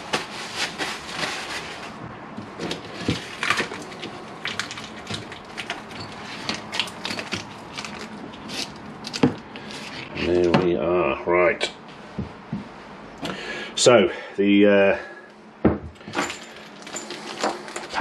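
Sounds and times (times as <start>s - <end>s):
paper packaging crinkling: 0.0s - 2.0s, 2.6s - 10.1s
packaging tearing open: 3.2s - 5.8s, 6.4s - 9.2s.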